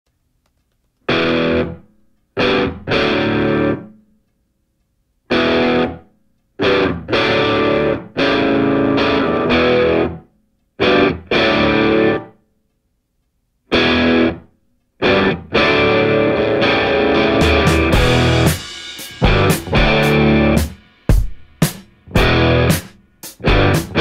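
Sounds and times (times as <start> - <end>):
distorted electric guitar chords: 1.1 - 4.0, 5.3 - 6.0, 6.6 - 10.2, 10.8 - 12.4, 13.7 - 24.0.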